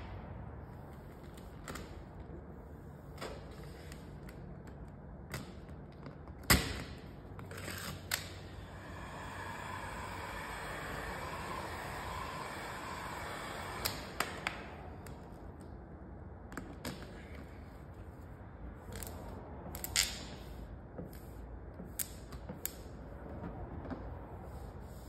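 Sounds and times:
heat gun blowing: 8.6s - 15.0s.

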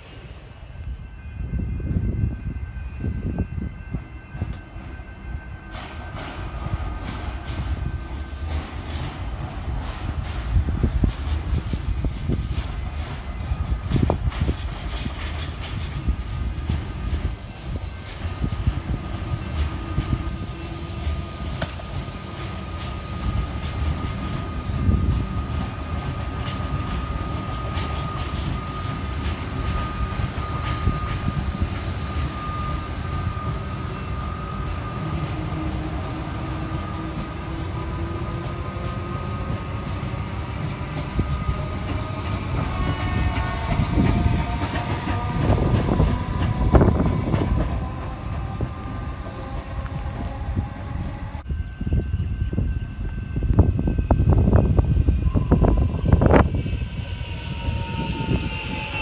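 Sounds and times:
electric train whine: 0.0s - 59.0s
train wheels rumbling over track: 0.0s - 59.0s.

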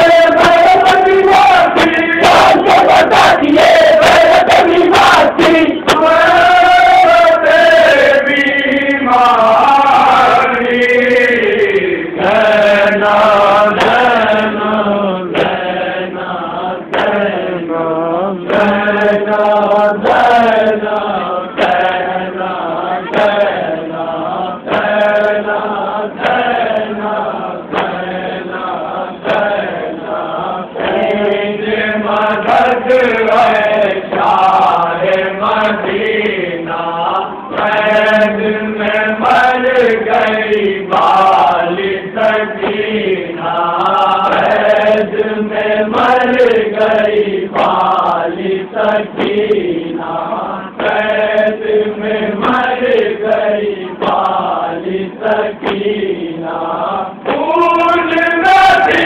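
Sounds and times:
men chanting a lament: 0.0s - 59.0s
chest-beating slaps: 15.3s - 15.7s, 27.7s - 28.6s, 53.9s - 54.4s, 55.6s - 56.0s.

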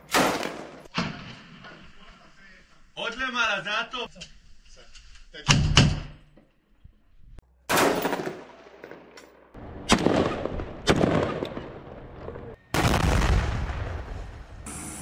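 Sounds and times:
gunshots with echoes: 9.8s - 11.8s.

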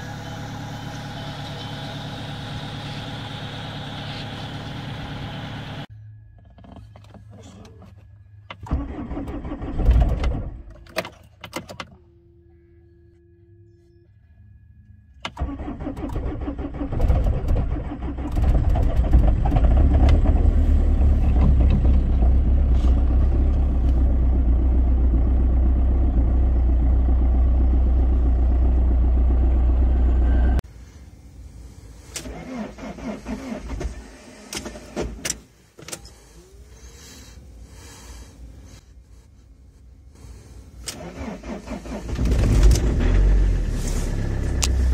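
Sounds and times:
diesel engine idling: 0.0s - 6.4s, 17.8s - 34.5s, 35.5s - 44.9s
starter motor cranking: 40.8s - 43.3s.

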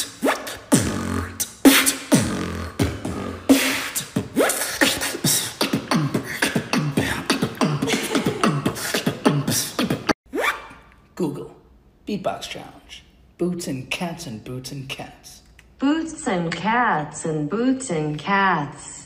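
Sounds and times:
man beatboxing a dance beat: 0.0s - 10.2s.

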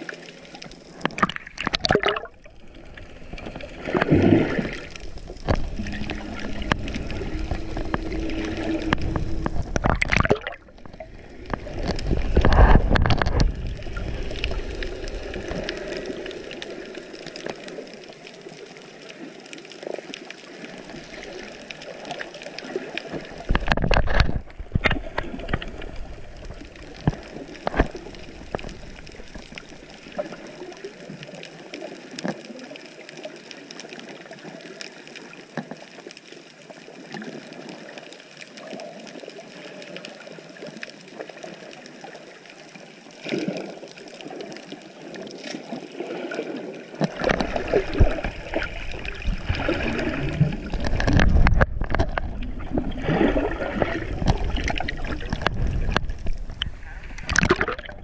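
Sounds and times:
churning bubbles from fins: 0.0s - 17.9s, 43.2s - 58.0s
muffled underwater wash: 0.0s - 58.0s
underwater clicks and crackles: 0.0s - 58.0s.

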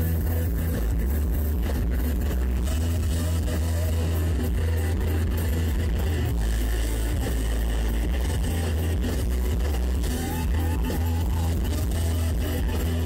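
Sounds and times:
pitch-bending electric guitar: 0.0s - 13.0s
rock band playing: 0.0s - 13.0s.

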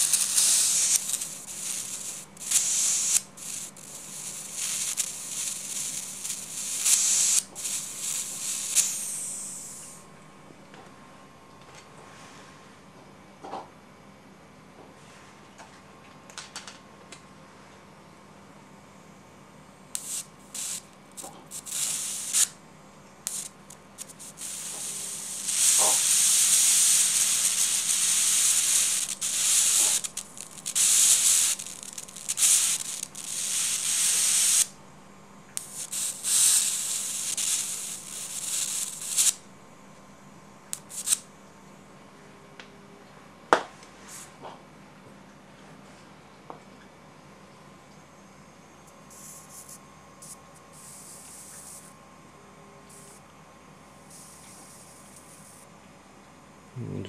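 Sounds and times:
tesla coil spark crackling: 0.0s - 10.0s, 19.9s - 22.6s, 23.2s - 34.8s, 35.6s - 39.5s, 40.7s - 41.3s, 49.0s - 52.0s, 54.1s - 55.7s.

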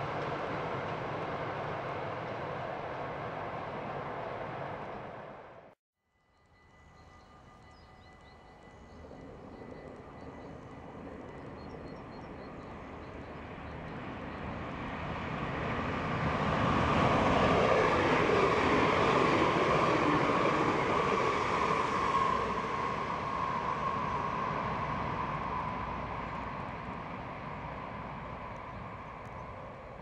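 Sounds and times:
train wheels rushing on rails: 0.0s - 5.7s, 7.9s - 30.0s.

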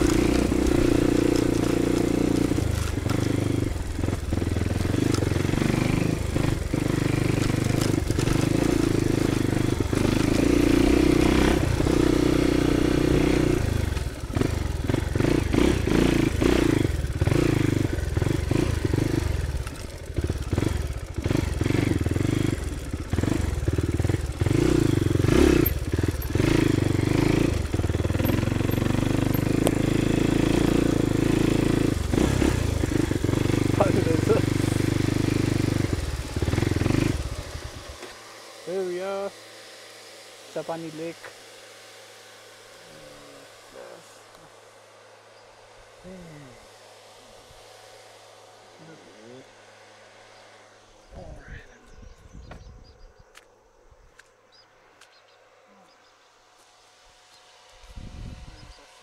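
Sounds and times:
bike knocking and rattling: 0.0s - 38.2s
dirt bike engine running: 0.0s - 53.4s, 54.2s - 59.0s.

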